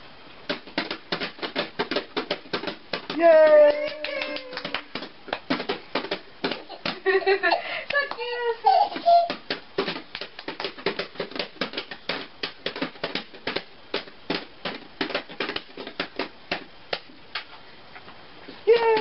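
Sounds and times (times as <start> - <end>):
baby tapping plastic cups: 0.5 - 17.5, 18.7 - 19.0.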